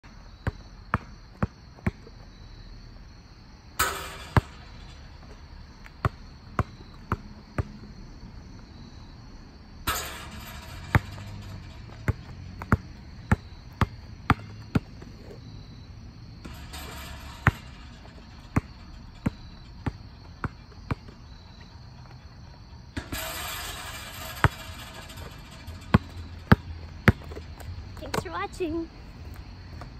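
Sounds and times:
basketball bouncing on hard court: 0.4 - 2.1, 3.8 - 5.0, 5.8 - 7.8, 9.9 - 15.4, 16.4 - 21.3, 23.0 - 28.3
ball rattling on hoop: 3.8 - 6.9, 9.8 - 15.1, 16.4 - 21.5, 23.0 - 28.4.

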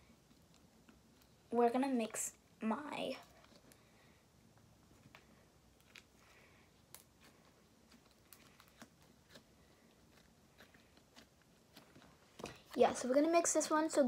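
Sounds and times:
slime being kneaded: 4.8 - 13.1.

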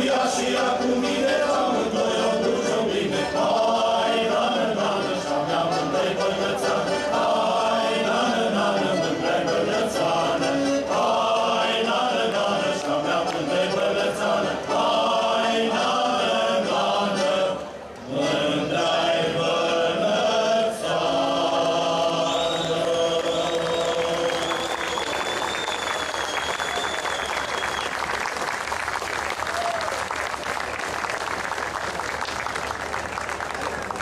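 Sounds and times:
choir singing a folk song: 0.0 - 25.0.

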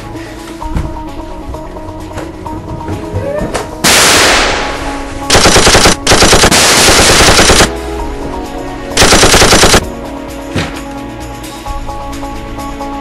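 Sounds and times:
background music: 0.0 - 13.0
loud blast: 3.8 - 7.7
automatic gunfire bursts: 5.3 - 7.7, 9.0 - 9.9.

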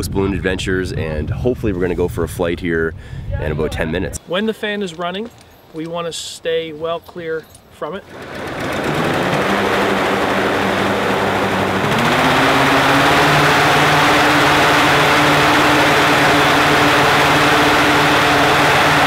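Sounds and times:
fan air rushing: 8.0 - 19.0
small gasoline engine running: 8.1 - 19.0.

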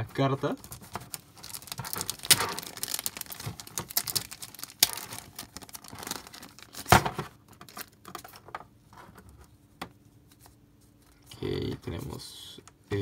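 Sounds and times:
plastic wrapper crinkling and tearing: 0.5 - 8.3
loud wrapper snaps: 1.1 - 6.9.

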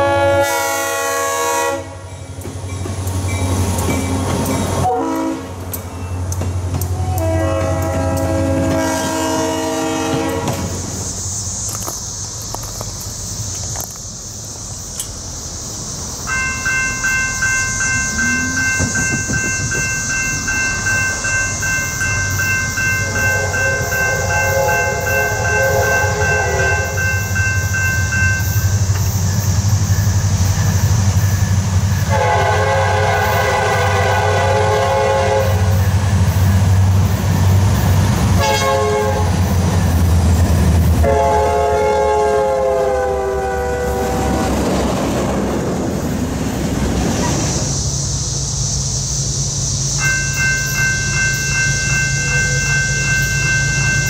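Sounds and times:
train horn blasts: 0.0 - 2.1, 4.8 - 5.6, 6.9 - 10.8, 22.8 - 27.2, 32.0 - 35.9, 38.4 - 39.4, 41.0 - 44.6
locomotive bell ringing: 16.2 - 32.7, 49.9 - 54.0.

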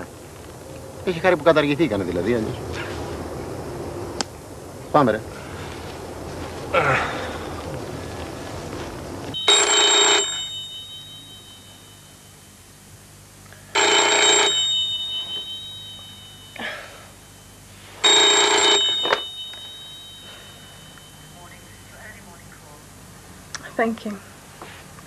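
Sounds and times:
high ringing tone: 9.3 - 23.1
telephone bell ringing: 9.4 - 12.6, 13.8 - 22.2.

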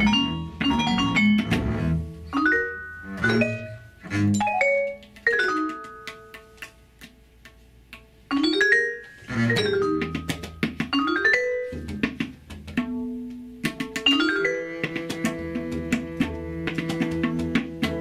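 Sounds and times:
bowed double bass: 0.0 - 5.0, 9.2 - 10.2, 14.4 - 18.0
vibraphone notes: 0.0 - 6.6, 8.3 - 12.3, 12.9 - 16.3.

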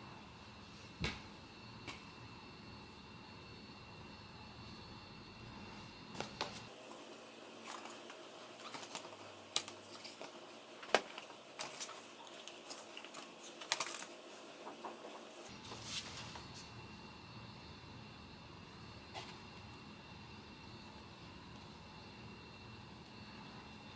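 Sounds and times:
paper rustling: 7.6 - 16.7.

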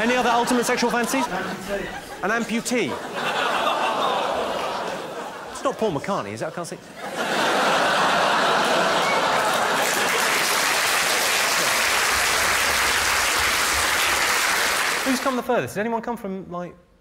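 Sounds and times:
audience applauding: 3.8 - 5.1, 7.4 - 15.4.

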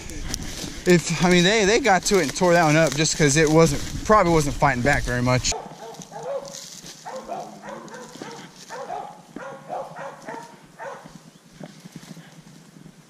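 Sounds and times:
dogs barking: 5.4 - 11.3.

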